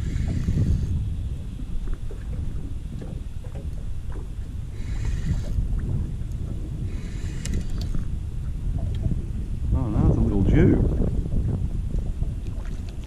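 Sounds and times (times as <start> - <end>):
fishing reel whirring: 0.0 - 1.0, 4.7 - 5.7, 6.9 - 8.1
waves slapping boat hull: 0.0 - 13.0
wind rumbling on microphone: 0.0 - 13.0.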